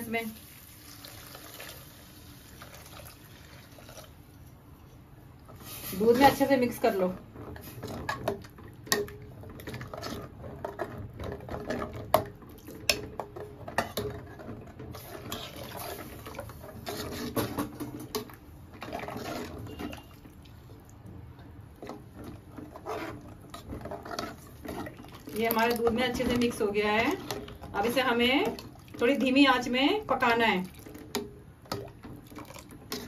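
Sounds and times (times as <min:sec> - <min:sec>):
liquid sloshing in pot: 0:00.5 - 0:33.0
ladle clinking and scraping pot: 0:05.6 - 0:20.4, 0:21.8 - 0:29.4.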